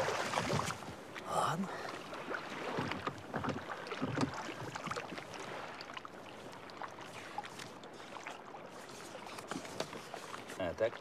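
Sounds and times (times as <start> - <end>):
water sounds: 0.0 - 11.0
oars knocking and clicking: 2.6 - 5.3, 7.0 - 11.0.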